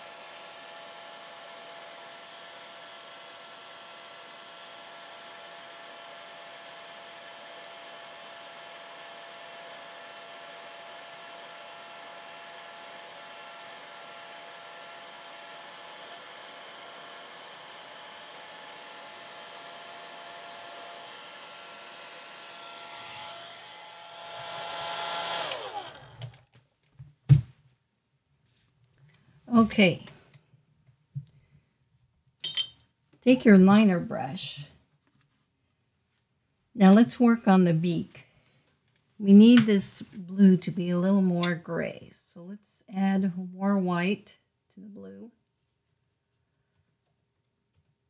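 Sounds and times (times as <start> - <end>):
motor spinning down: 0.0 - 26.4
hair dryer running: 0.0 - 26.5.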